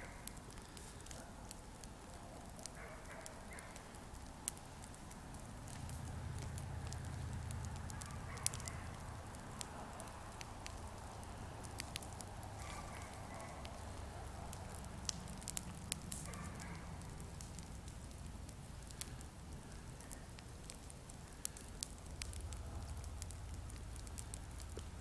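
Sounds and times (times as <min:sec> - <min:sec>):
campfire crackling and popping: 0:00.0 - 0:25.0.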